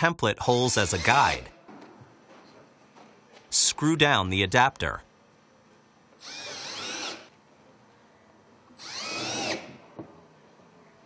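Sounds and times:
cordless drill driving screws: 6.2s - 7.3s, 8.8s - 9.8s.

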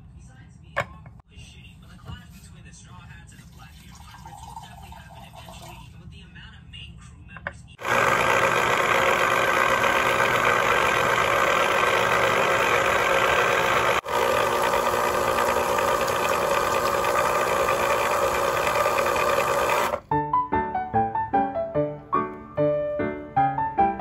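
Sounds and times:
electric citrus juicer motor: 7.8s - 20.1s.

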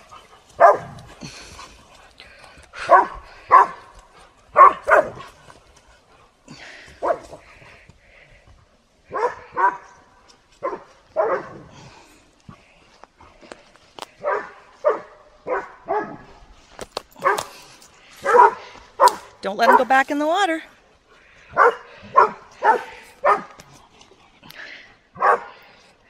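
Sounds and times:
dogs barking: 0.0s - 1.1s, 2.8s - 3.9s, 4.5s - 5.3s, 9.1s - 9.9s, 10.6s - 11.7s, 14.2s - 16.3s, 17.2s - 17.6s, 18.2s - 20.0s, 21.5s - 23.6s, 25.2s - 25.6s.

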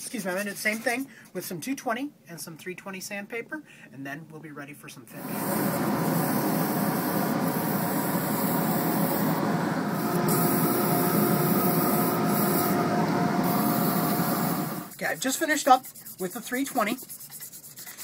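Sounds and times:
lathe machine hum: 5.2s - 14.9s
sandpaper hissing on spinning wood: 5.2s - 18.0s.

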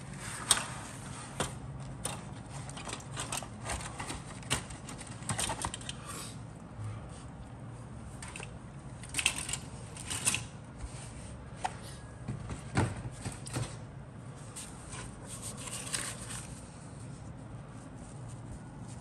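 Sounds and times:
cardboard and paper rustling: 0.2s - 5.9s, 14.4s - 19.0s.

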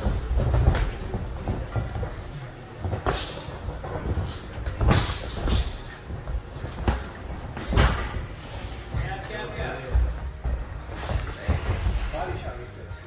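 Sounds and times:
boxing gloves smacking: 0.0s - 1.9s.

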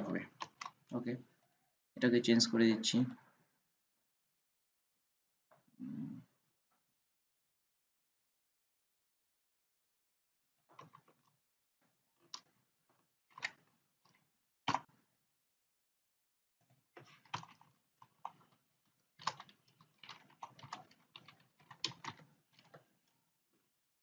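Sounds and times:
faint computer keyboard typing: 0.0s - 1.6s, 10.7s - 11.2s, 13.3s - 14.9s, 17.0s - 23.2s.

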